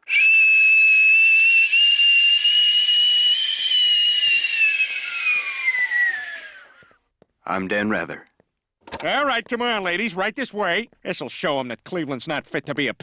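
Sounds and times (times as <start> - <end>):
cartoon steam whistle: 0.0 - 6.8.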